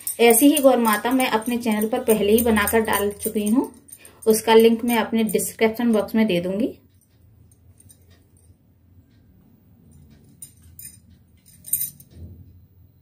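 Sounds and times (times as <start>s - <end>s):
clay balls clinking on steel plate: 0.0s - 6.2s.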